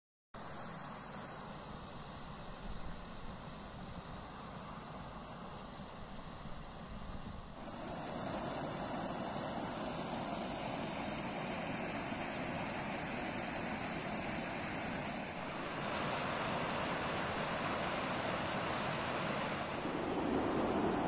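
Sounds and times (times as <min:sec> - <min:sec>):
water rushing over weir: 0:07.6 - 0:21.0.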